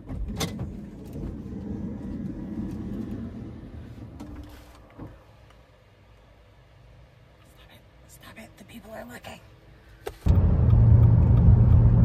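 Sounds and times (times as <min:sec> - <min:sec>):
car engine rumble: 0:00.0 - 0:07.3, 0:10.2 - 0:12.0.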